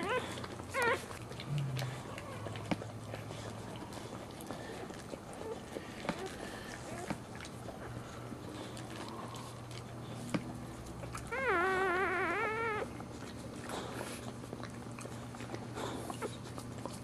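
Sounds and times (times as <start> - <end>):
puppy crying: 0.0 - 2.9, 11.0 - 13.0.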